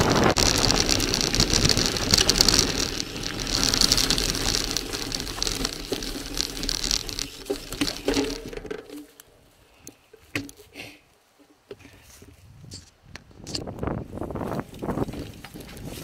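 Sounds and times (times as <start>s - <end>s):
low wind rumble: 0.0s - 8.5s
bicycle tyres crunching on gravel: 0.0s - 11.0s, 13.8s - 16.0s.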